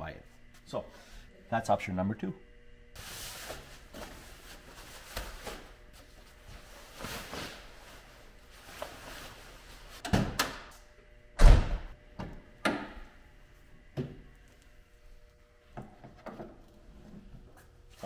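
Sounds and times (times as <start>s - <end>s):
fabric car cover rustling: 3.0s - 10.0s
loud thump: 11.4s - 11.9s.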